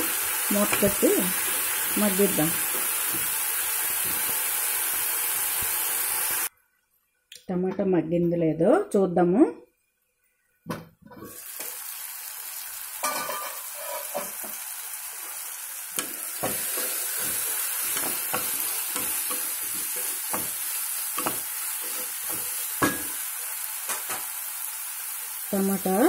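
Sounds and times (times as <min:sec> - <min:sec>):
food sizzling in oil: 0:00.0 - 0:06.5, 0:11.2 - 0:26.0
spatula scraping pan: 0:13.2 - 0:14.5, 0:16.0 - 0:23.2.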